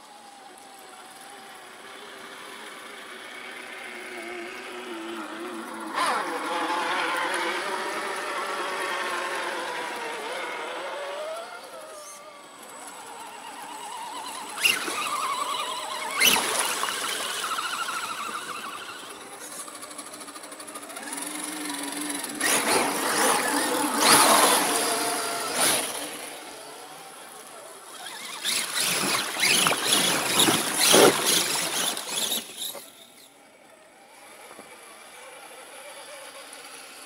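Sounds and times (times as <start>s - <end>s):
electric motor and gear whine: 0.0s - 37.0s
tyres splashing through mud: 14.4s - 18.9s, 27.9s - 32.8s.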